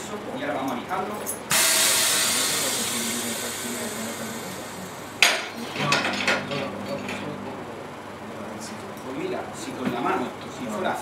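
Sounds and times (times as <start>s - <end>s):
compressed air hissing: 1.5s - 5.6s.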